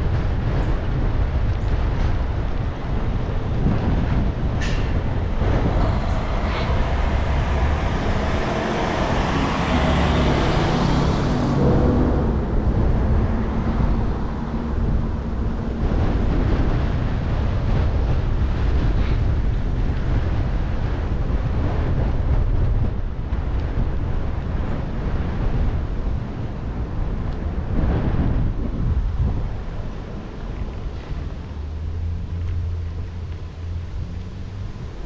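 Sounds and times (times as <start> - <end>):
wind rumbling on microphone: 0.0 - 35.0
motor vehicle passing: 3.7 - 21.0, 30.0 - 35.0.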